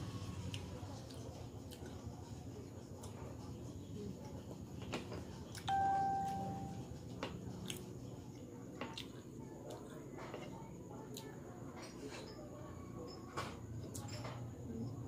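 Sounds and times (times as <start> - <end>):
chime-like ding: 5.7 - 6.8.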